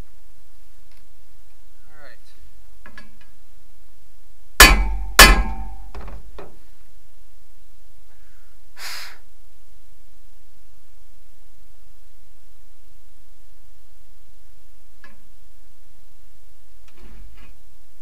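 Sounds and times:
hammer blows on steel ringing: 0:04.6 - 0:06.0.

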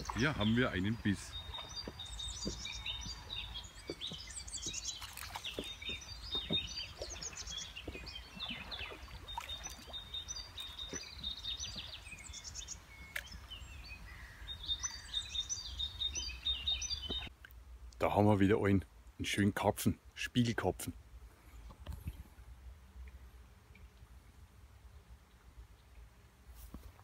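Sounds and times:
songbirds singing: 0:00.0 - 0:20.8.

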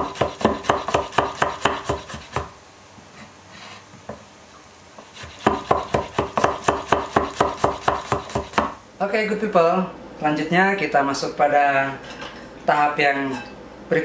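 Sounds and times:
knife chopping on wooden board: 0:00.0 - 0:02.5, 0:05.2 - 0:08.8.

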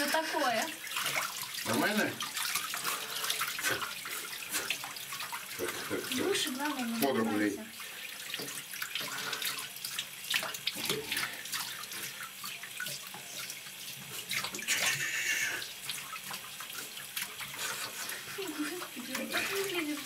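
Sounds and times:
water running into tub: 0:00.0 - 0:20.0
water splashing: 0:00.0 - 0:20.0
shower head spraying water: 0:12.8 - 0:20.0.

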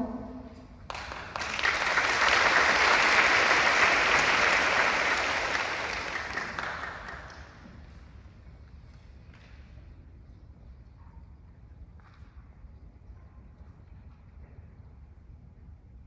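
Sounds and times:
audience applauding: 0:00.9 - 0:08.0.

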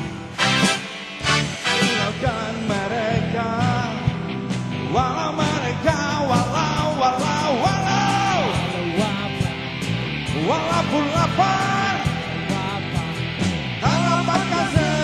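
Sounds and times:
drum kit beat: 0:00.0 - 0:15.0
electric guitars: 0:00.0 - 0:15.0.

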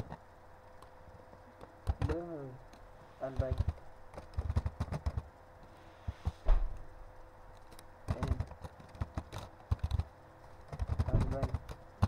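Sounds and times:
keyboard typing: 0:01.6 - 0:02.4, 0:03.2 - 0:05.3, 0:07.6 - 0:12.0.

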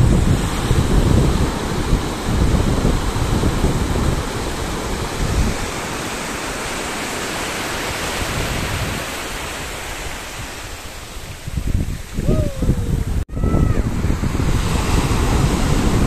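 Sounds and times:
surf washing onto beach: 0:00.0 - 0:16.0
wind buffeting microphone: 0:00.0 - 0:16.0.

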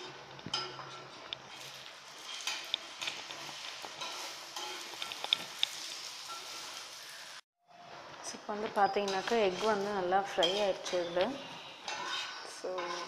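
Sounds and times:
metal spatula scraping a pan: 0:00.0 - 0:08.1, 0:08.8 - 0:13.0
egg sizzling in a pan: 0:01.4 - 0:07.5.

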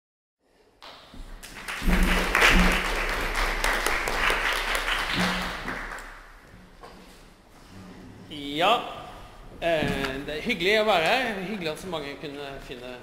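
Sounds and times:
audience applauding: 0:00.8 - 0:06.3.

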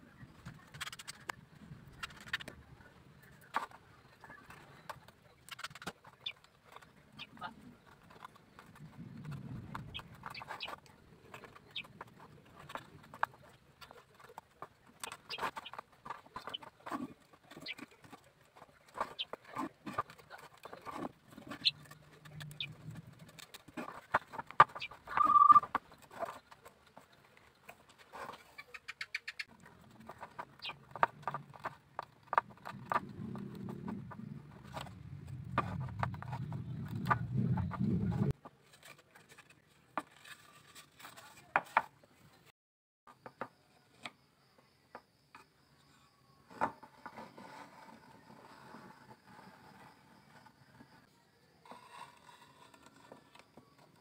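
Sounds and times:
low rumbling noise: 0:32.5 - 0:38.4.

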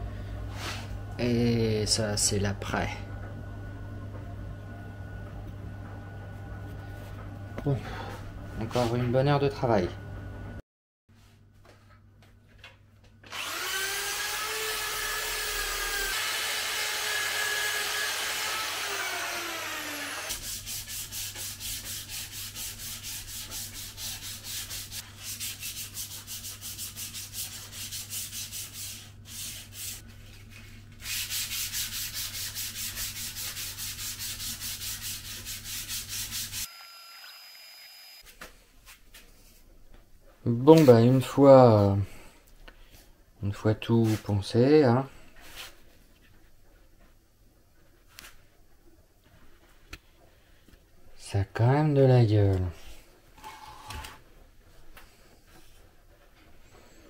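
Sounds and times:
power tool whining: 0:13.3 - 0:20.4, 0:36.6 - 0:38.2
sandpaper rubbing on metal: 0:20.3 - 0:36.7.

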